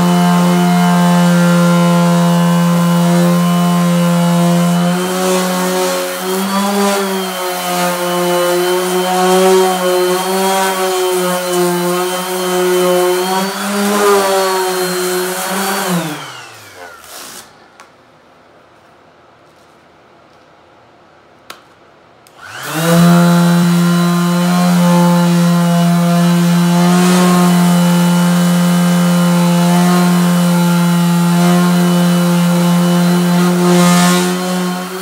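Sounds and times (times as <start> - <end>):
orbital sander whining on metal: 0.0 - 17.4, 22.4 - 35.0.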